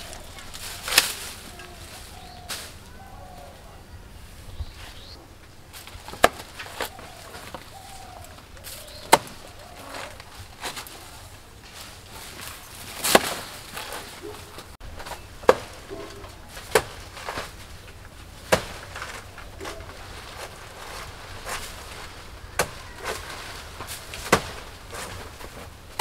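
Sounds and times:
machete chopping into tree: 6.1s - 7.0s, 16.6s - 17.0s, 23.9s - 25.2s.

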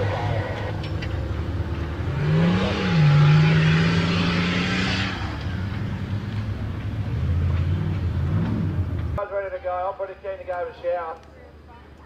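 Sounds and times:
truck engine revving: 0.0s - 9.2s.

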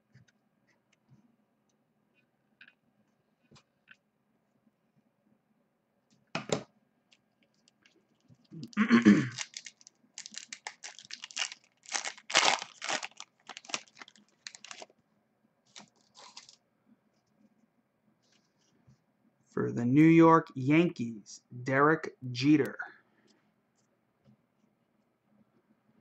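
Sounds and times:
foil wrapper tearing and crinkling: 8.5s - 14.9s, 15.7s - 16.6s.

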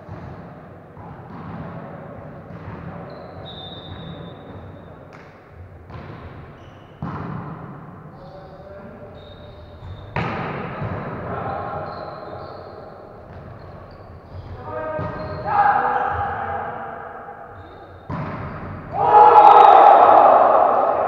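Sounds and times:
volleyball smacks echoing: 18.1s - 19.4s
players calling out: 18.9s - 21.0s.

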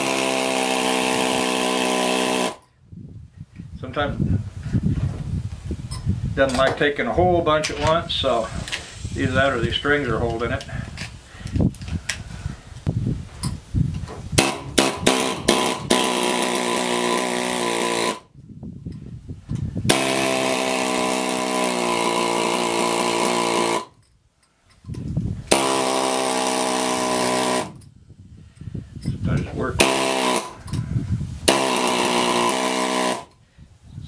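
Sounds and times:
pneumatic air chisel hammering metal: 0.0s - 2.7s, 14.4s - 18.3s, 19.6s - 27.9s, 29.8s - 33.4s.

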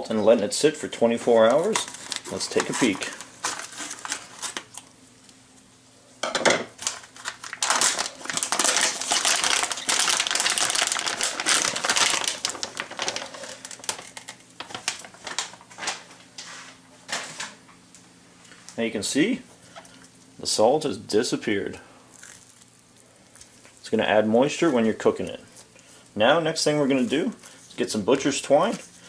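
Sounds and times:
plastic bag crinkling: 1.4s - 4.9s, 6.8s - 16.2s.

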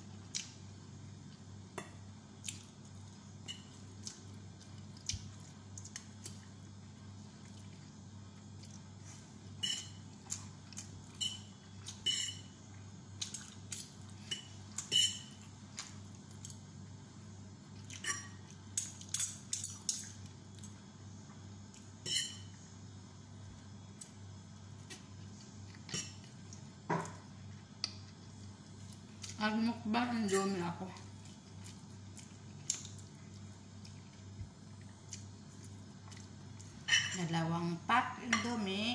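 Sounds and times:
low steady hum: 0.0s - 38.9s.

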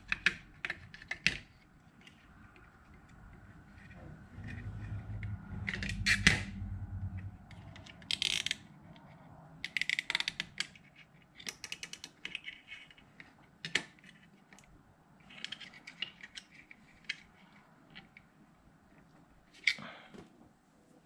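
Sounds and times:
low rumble: 3.0s - 8.2s.

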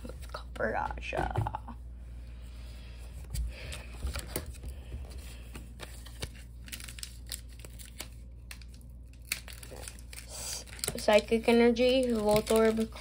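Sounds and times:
cards clicking and rustling: 3.3s - 13.0s
foil wrapper crinkling and tearing: 5.8s - 13.0s.

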